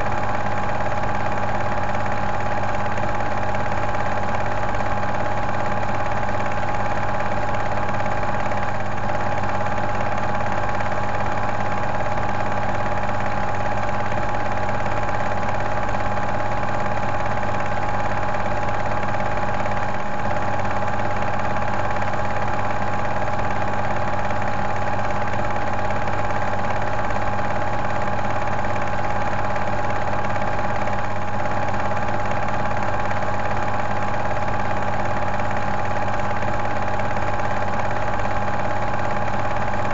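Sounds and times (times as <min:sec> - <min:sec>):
film projector humming: 0:00.0 - 0:39.9.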